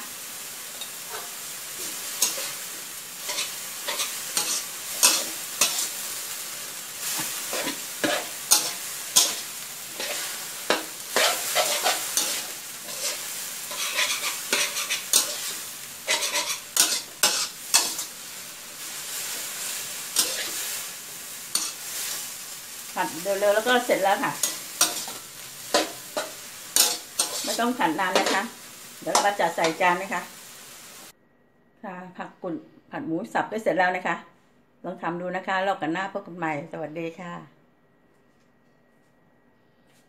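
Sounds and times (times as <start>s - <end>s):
food sizzling in a wok: 0.0s - 31.1s
metal spatula scraping a wok: 0.7s - 22.5s, 23.2s - 29.9s.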